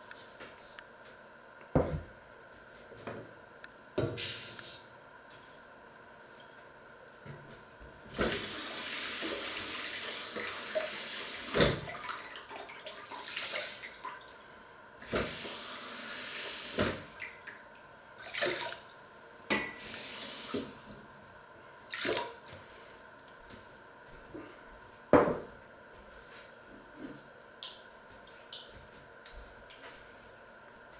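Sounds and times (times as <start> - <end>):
tap water running: 8.1 - 18.9, 19.5 - 20.7
cup knocking against sink: 25.2 - 25.5.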